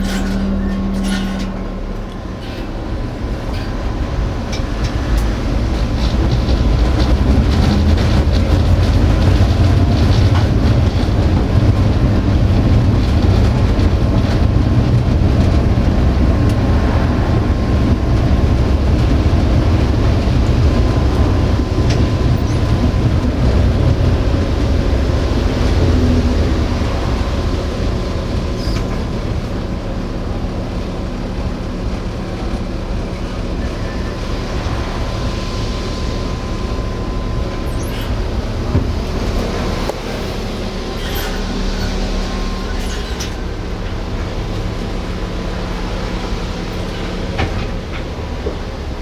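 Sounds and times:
tram wheels rolling rumble: 0.0s - 49.0s
thin steady whine: 31.1s - 49.0s.

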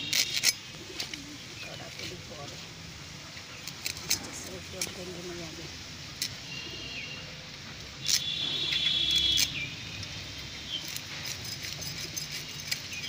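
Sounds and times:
fish scraped against blade: 10.8s - 13.0s.

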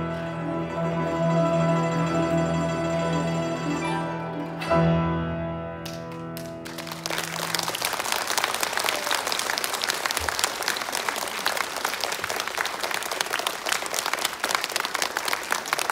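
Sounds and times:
guzheng and piano chord ringing: 0.0s - 5.8s
audience applause: 6.4s - 15.9s.

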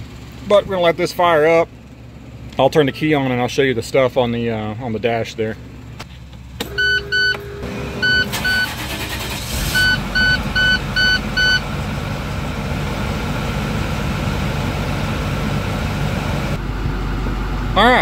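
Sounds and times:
diesel engine starting and idling: 0.0s - 18.0s
dashboard warning chimes: 6.6s - 11.7s.

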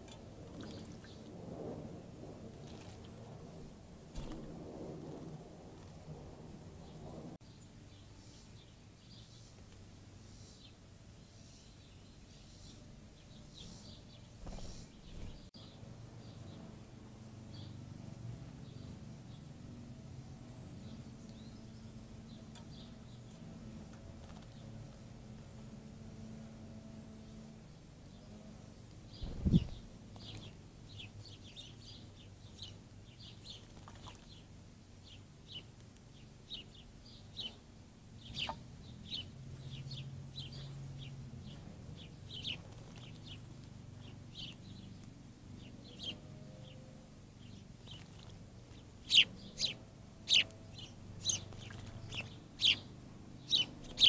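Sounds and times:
songbird chip notes: 48.7s - 54.0s.

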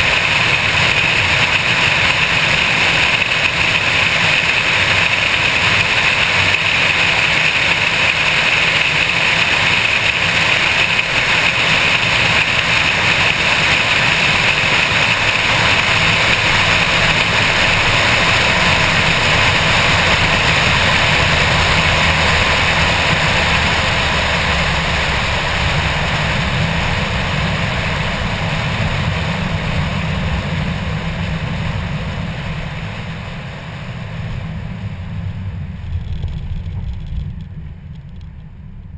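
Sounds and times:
low engine drone: 0.0s - 38.9s
wind and road noise: 0.0s - 38.9s.

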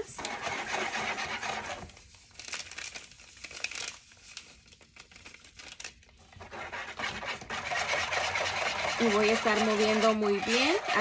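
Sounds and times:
packet crinkling: 1.9s - 6.3s.

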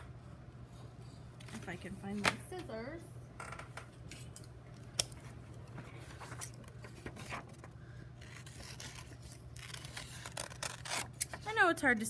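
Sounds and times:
paper rustling: 5.8s - 11.4s
scissors snipping paper: 8.2s - 11.5s.

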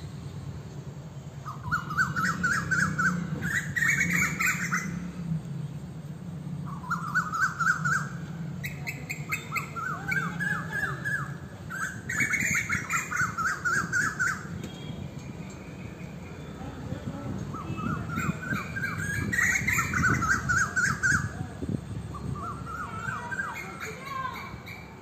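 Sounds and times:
bird chirping: 0.7s - 5.3s, 6.6s - 21.3s.

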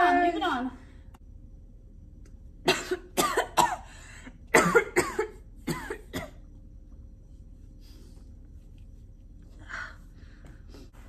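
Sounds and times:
woman coughing: 2.6s - 6.5s.

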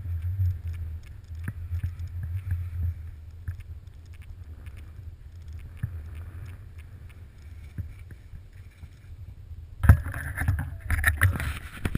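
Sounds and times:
light clicks: 0.1s - 9.1s.

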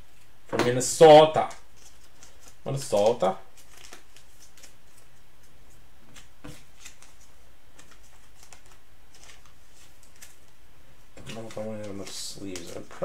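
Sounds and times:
trading cards clicking and rustling: 0.6s - 10.6s, 11.2s - 13.0s.

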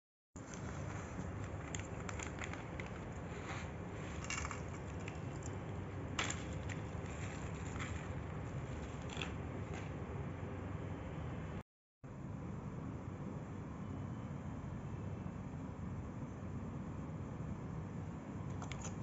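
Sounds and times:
plastic bag crinkling: 0.4s - 9.8s
steady low hum: 0.4s - 19.0s.

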